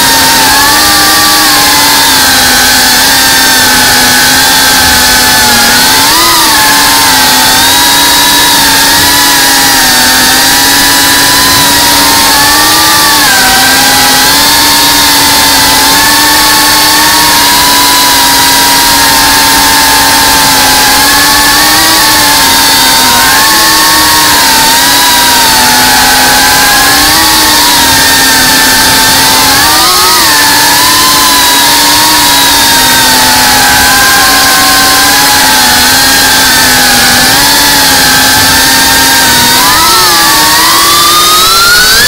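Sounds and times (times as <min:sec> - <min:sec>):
drone motors and propellers whining: 0:00.0 - 0:42.0.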